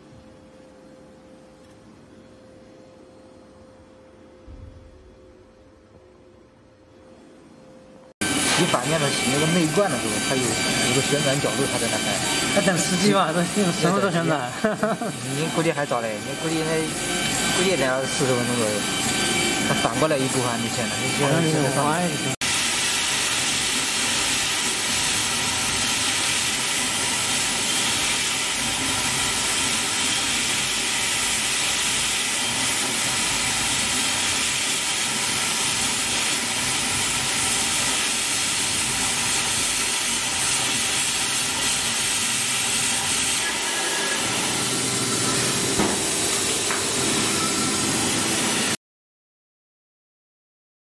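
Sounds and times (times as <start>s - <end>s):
milling machine spindle hissing: 8.2s - 48.8s.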